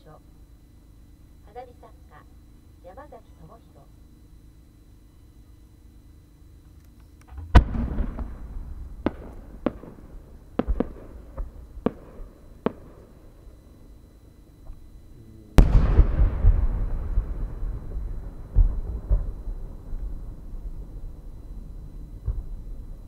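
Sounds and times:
firework launch bang: 7.3s - 10.0s, 15.6s - 19.3s
firework shell boom with rumble: 7.3s - 10.0s, 15.6s - 19.4s
sharp firework cracks: 7.3s - 13.0s, 15.6s - 17.7s.

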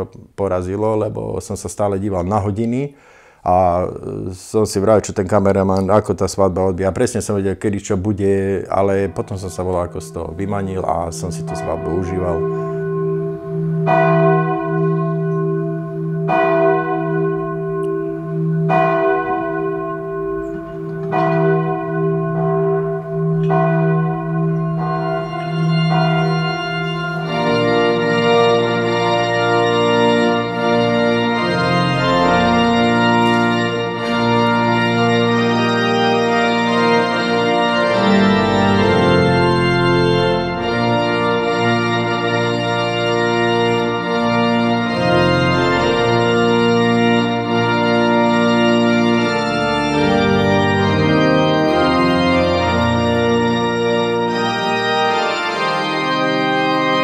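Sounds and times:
church organ chords: 0.0s - 57.0s
church bell tolling: 8.1s - 57.0s.

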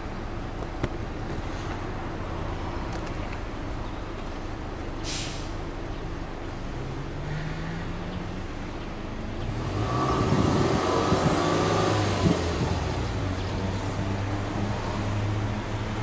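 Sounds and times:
car exhaust idling and revving: 5.6s - 16.0s.

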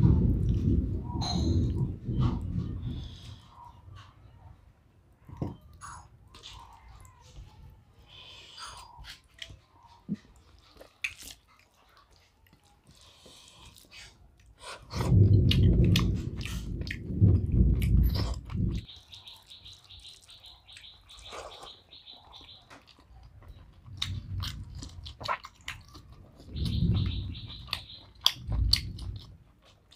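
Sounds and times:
loud low rumble: 0.0s - 3.4s, 15.1s - 18.8s
chewing with mouth clicks: 8.1s - 17.0s, 17.8s - 29.9s.

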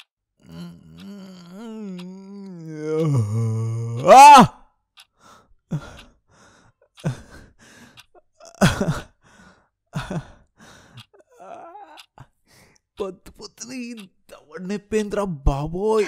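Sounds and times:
man sighing and groaning: 0.4s - 4.6s, 5.7s - 6.0s, 7.0s - 7.5s, 8.4s - 9.2s, 10.0s - 12.3s.

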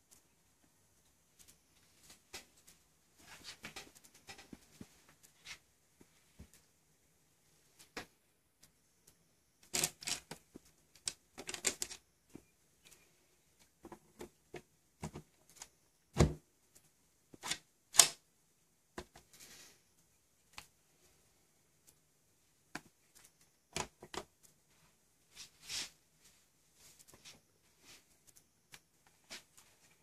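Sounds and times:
plastic parts clicking and knocking: 7.9s - 13.0s, 22.7s - 24.5s.

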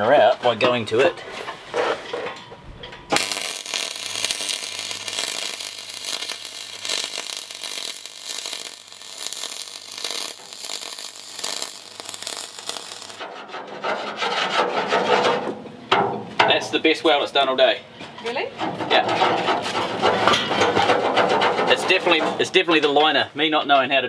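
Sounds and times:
welding arc crackling hiss: 3.1s - 13.2s.

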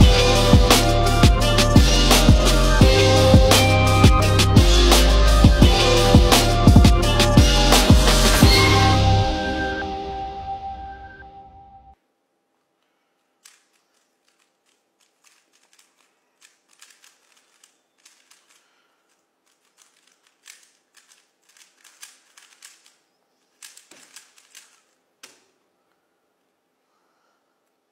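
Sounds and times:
puzzle cube clicking and rattling: 13.4s - 25.6s.

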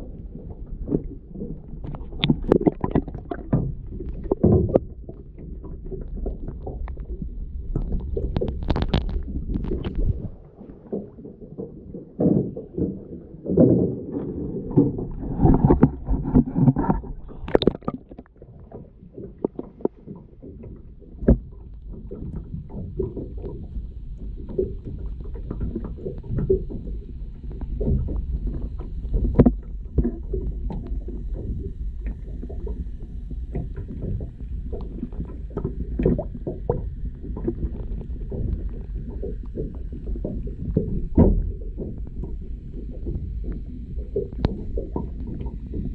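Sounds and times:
muffled underwater water sloshing: 0.0s - 45.9s.

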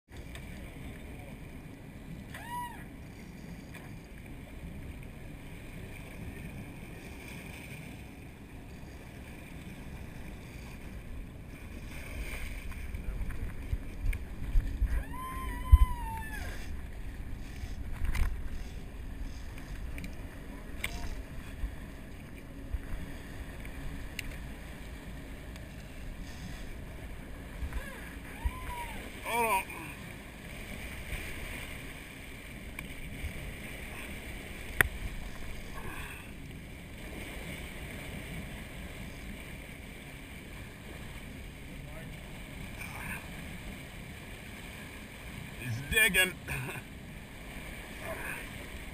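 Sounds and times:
sea: 0.0s - 48.9s
boat engine rumble: 0.1s - 48.9s
wind on microphone: 9.7s - 24.7s, 25.8s - 29.3s
person yelling: 14.9s - 16.6s, 27.8s - 29.7s.

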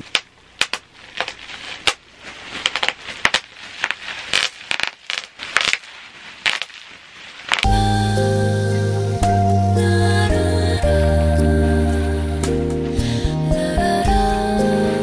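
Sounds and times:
bubble wrap crinkling and popping: 0.0s - 8.5s.

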